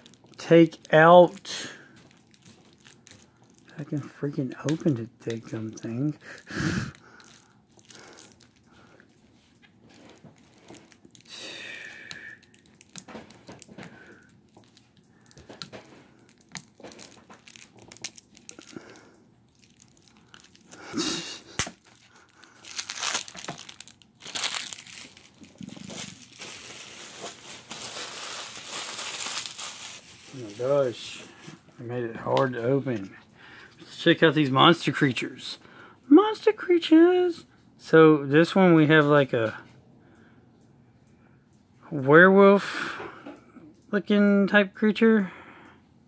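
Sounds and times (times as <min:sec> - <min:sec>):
plastic shrink wrap crinkling: 0:00.0 - 0:31.6.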